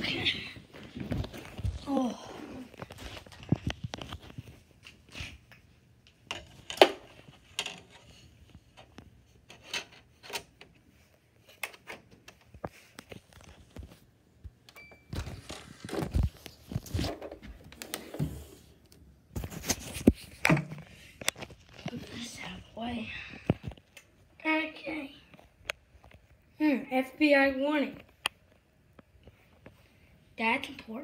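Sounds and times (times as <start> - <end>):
objects knocking and rustling: 2.6 - 10.8, 15.1 - 18.6, 19.3 - 22.6.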